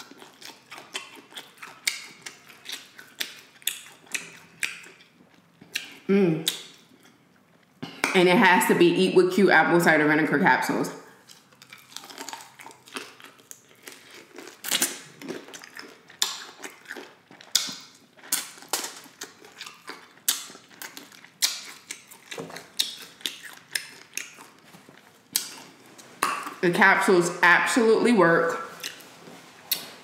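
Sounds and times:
crunchy chewing: 0.0 - 7.8, 11.2 - 26.6.

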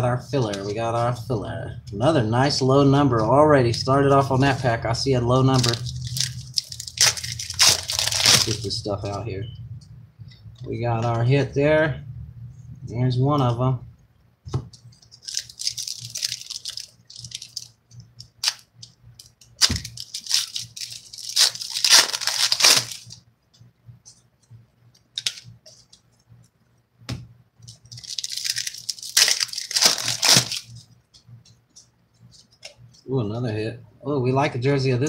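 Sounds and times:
foil wrappers crinkling: 3.2 - 9.2, 15.0 - 23.2, 25.1 - 26.0, 27.6 - 30.8.

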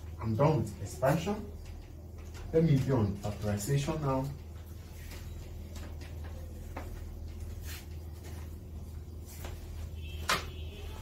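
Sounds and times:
eraser wiping a whiteboard: 7.4 - 8.3.

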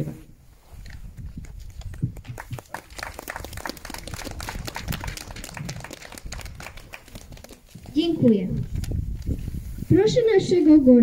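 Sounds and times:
crowd applauding: 1.8 - 7.7.

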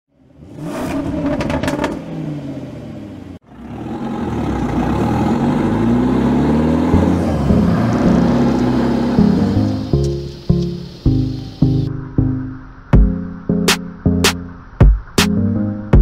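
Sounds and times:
off-road vehicle engine revving: 0.1 - 11.8.

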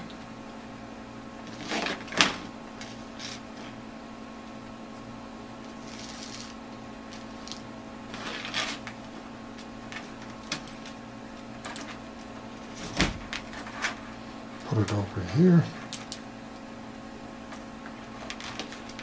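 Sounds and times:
steady electrical hum: 0.0 - 19.0.

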